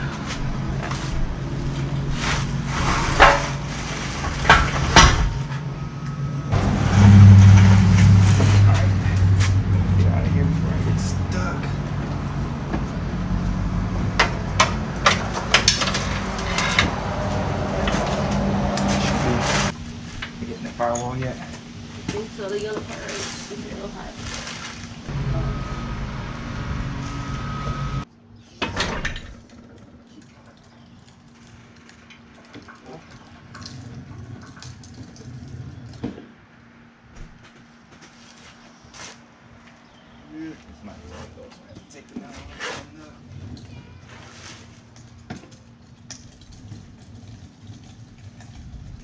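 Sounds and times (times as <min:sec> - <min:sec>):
low rumble: 0:00.0 - 0:20.3
metal knocks and clanks: 0:00.4 - 0:05.8, 0:14.0 - 0:17.2.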